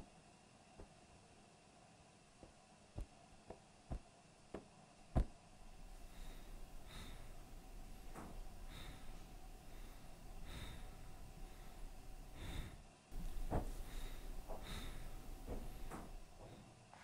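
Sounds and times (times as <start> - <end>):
low hum: 5.1 - 16.7
soft breaths: 5.1 - 17.0
footsteps down a staircase: 13.2 - 17.0.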